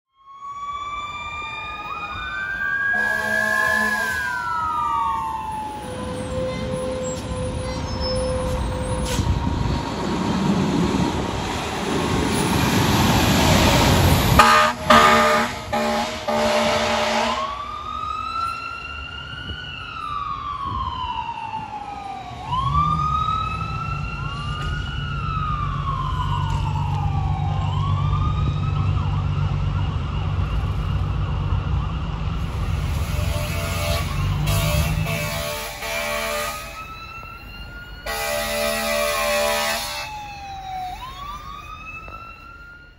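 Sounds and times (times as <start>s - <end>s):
siren wailing: 0.1s - 10.0s, 13.7s - 42.9s
fire engine air horn blasting: 2.8s - 4.8s, 14.2s - 17.8s, 32.4s - 37.1s, 38.0s - 40.4s.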